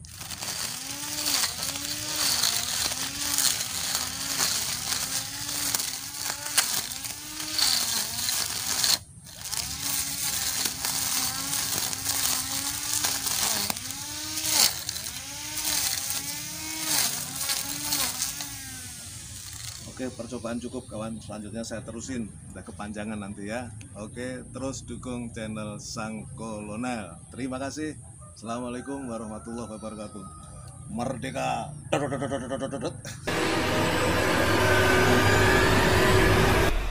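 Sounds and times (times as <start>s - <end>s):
ticking of cut grass: 0.0s - 20.0s
grass trimmer motor whine: 0.0s - 20.6s, 33.3s - 36.9s.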